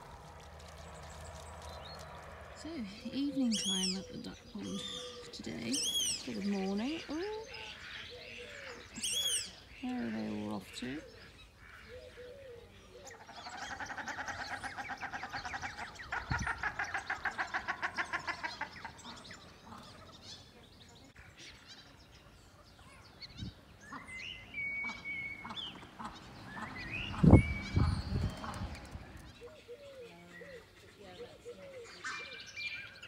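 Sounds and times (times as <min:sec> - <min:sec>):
waterfowl cackling calls: 0:13.2 - 0:20.2, 0:24.7 - 0:28.8.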